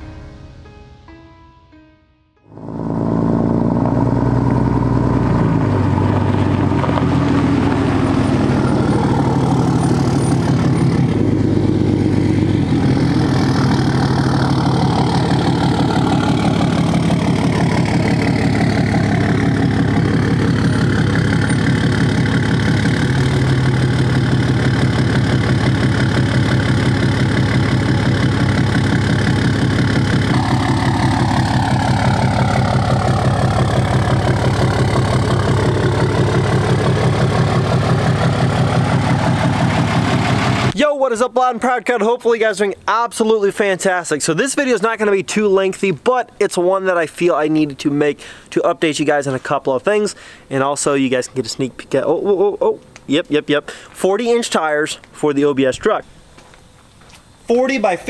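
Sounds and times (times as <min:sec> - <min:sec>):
truck engine running: 0:02.5 - 0:40.8.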